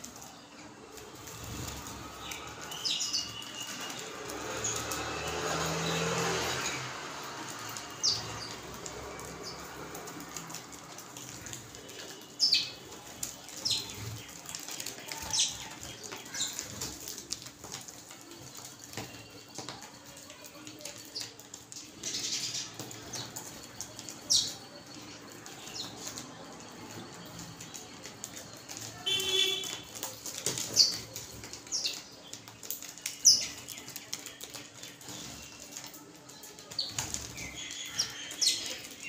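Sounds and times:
sparrows chirping: 0.0 - 39.0
wings flapping: 0.9 - 24.6.

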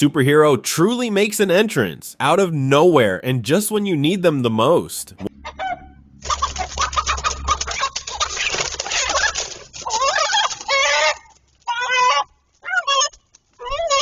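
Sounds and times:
chickens squawking in alarm: 5.4 - 14.0
wings flapping and scuffling: 6.2 - 14.0.

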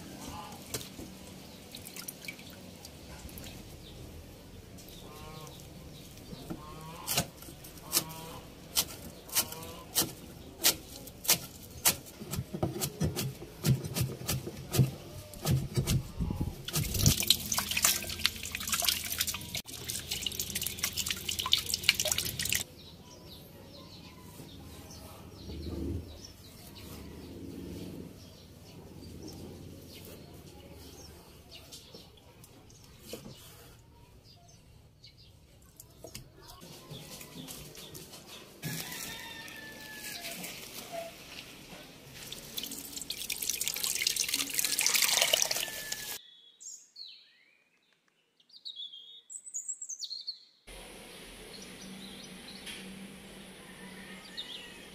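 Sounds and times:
meat rubbed and washed by hand: 15.6 - 22.6, 37.0 - 46.2
tap water running into basin: 16.6 - 22.6, 42.1 - 46.2
birds chirping: 51.4 - 54.9.

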